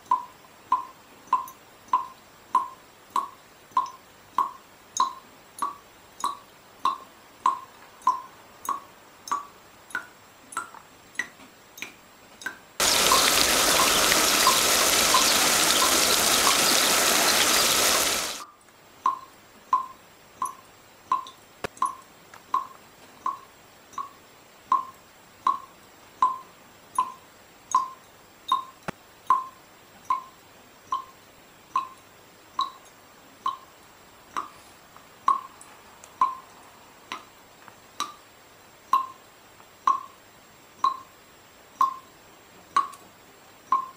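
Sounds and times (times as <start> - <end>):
water dripping: 0.0 - 33.7, 34.3 - 34.6, 35.2 - 37.4, 38.9 - 39.2, 39.8 - 40.2, 40.8 - 41.1, 41.8 - 42.0, 42.8 - 43.0
loud rushing hiss: 12.8 - 18.4.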